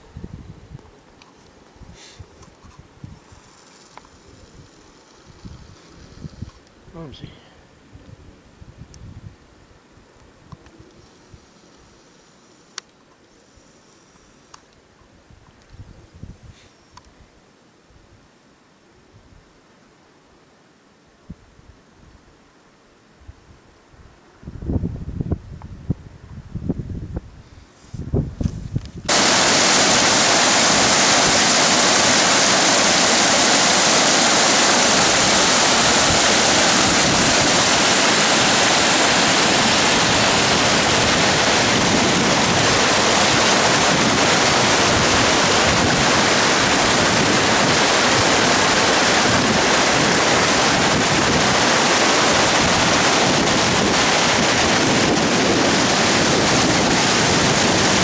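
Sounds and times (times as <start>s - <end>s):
mountain stream rushing: 29.1s - 58.0s.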